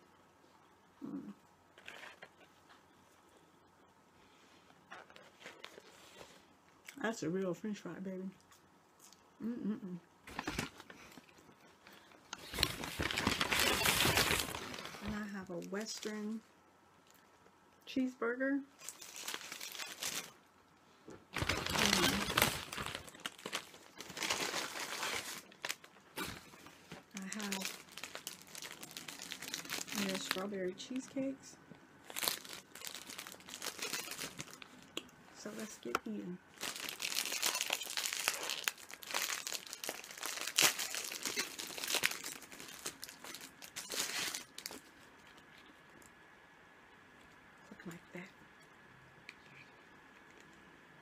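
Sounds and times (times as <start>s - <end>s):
paper bag and wrappers crinkling: 10.3s - 16.4s, 18.8s - 20.4s, 21.3s - 31.4s, 32.0s - 45.4s.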